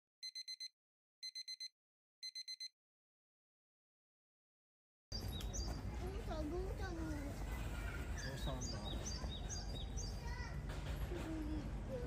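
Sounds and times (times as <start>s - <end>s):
bird chirping: 5.1s - 5.9s, 8.0s - 10.3s
outdoor background noise: 5.1s - 12.0s.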